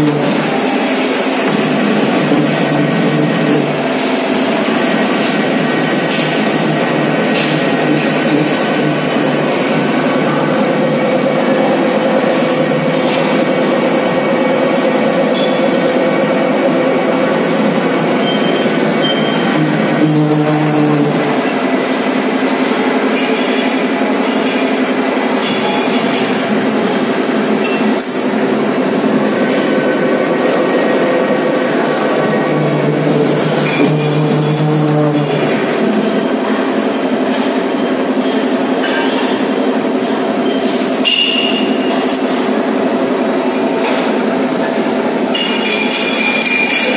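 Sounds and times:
metal lathe running: 0:00.0 - 0:46.9
sharp metallic clink: 0:40.5 - 0:42.1.

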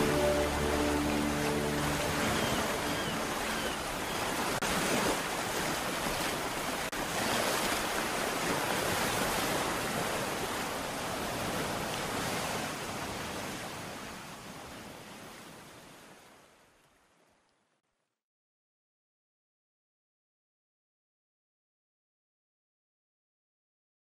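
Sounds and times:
held music notes: 0:00.0 - 0:04.0
surf washing: 0:00.0 - 0:16.8.

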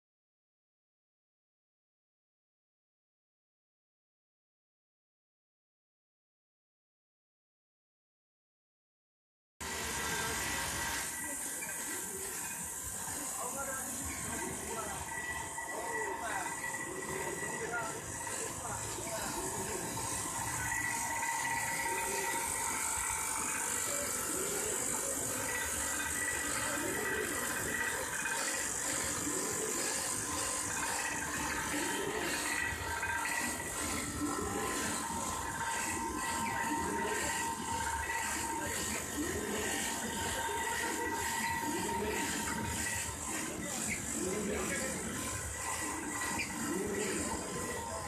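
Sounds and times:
machine whirring and humming: 0:09.6 - 0:48.0
gears rattling and clicking: 0:10.0 - 0:48.0.

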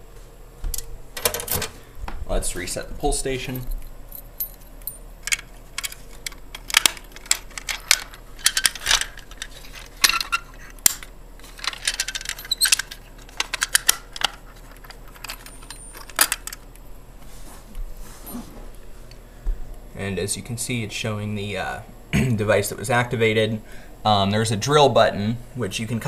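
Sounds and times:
keys jangling: 0:03.5 - 0:16.6.

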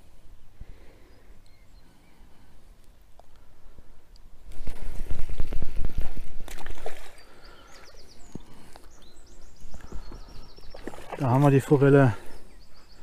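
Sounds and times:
fish splashing and thrashing: 0:04.6 - 0:07.8, 0:09.8 - 0:11.9.

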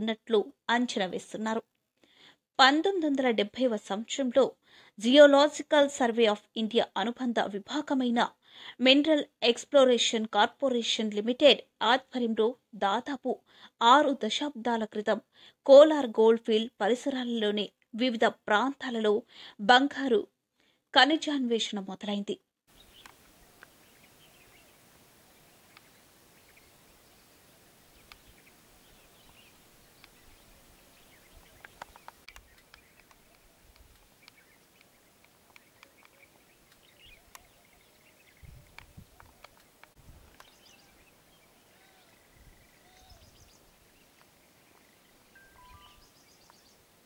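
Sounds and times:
steady hiss: 0:22.7 - 0:42.5
birds chirping: 0:22.7 - 0:47.0.

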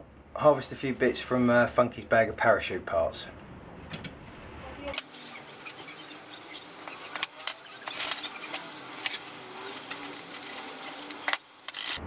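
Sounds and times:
straps rustling: 0:04.9 - 0:12.0.

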